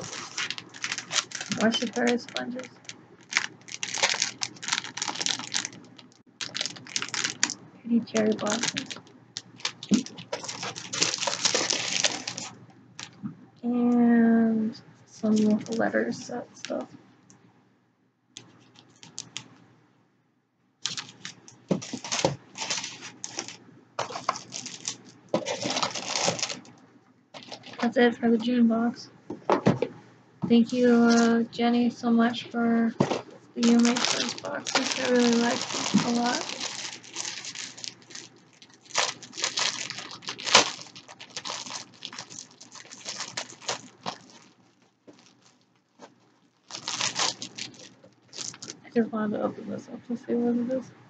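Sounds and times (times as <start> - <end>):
plastic tearing: 0.0 - 13.2, 18.4 - 19.5, 20.8 - 26.8, 27.4 - 27.9, 33.0 - 48.8
plastic packaging crinkling: 0.0 - 13.3, 15.2 - 16.9, 18.4 - 19.5, 20.8 - 26.8, 27.4 - 28.0, 30.7 - 31.4, 32.9 - 48.9.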